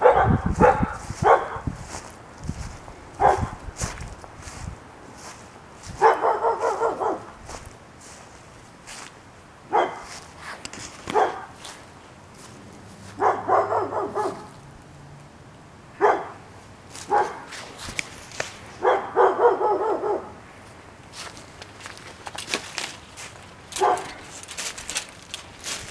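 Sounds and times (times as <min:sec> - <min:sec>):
dog barking: 0:00.0 - 0:01.7, 0:03.2 - 0:03.6, 0:06.0 - 0:07.3, 0:09.7 - 0:10.1, 0:11.1 - 0:11.6, 0:13.2 - 0:14.5, 0:16.0 - 0:16.4, 0:17.1 - 0:17.5, 0:18.8 - 0:20.4, 0:23.8 - 0:24.2.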